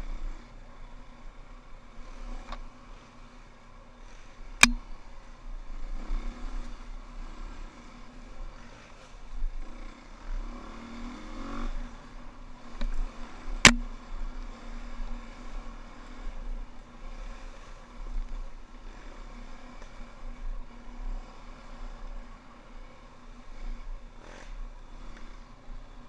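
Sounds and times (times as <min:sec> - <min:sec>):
dirt bike engine revving: 0:05.7 - 0:18.1, 0:18.8 - 0:25.7.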